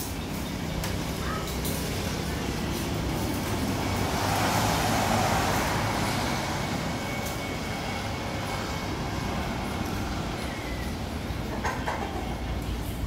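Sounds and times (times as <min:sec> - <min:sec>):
rain hissing: 0:02.1 - 0:06.8.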